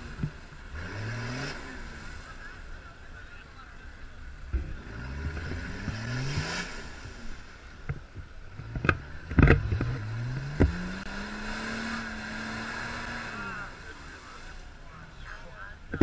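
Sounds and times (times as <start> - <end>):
off-road engine revving: 0.0 - 16.0.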